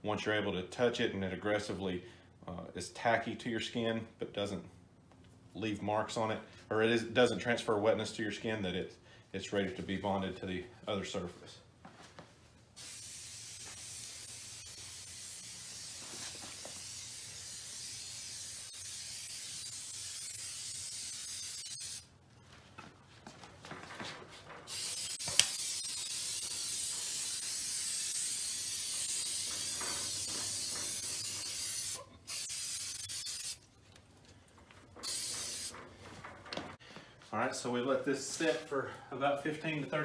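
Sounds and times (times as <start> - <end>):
aerosol spray hissing: 12.8 - 22.0, 24.7 - 33.6, 35.0 - 35.7.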